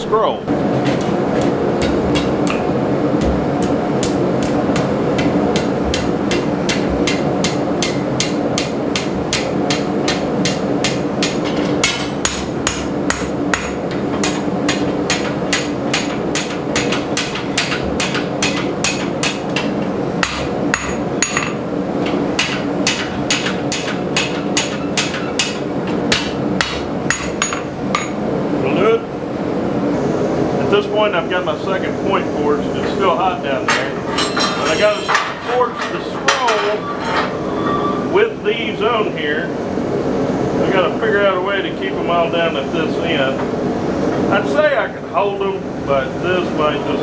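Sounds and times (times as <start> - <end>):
hammer striking metal on anvil: 1.4 - 2.7, 3.6 - 21.6, 22.4 - 28.2, 33.7 - 37.3.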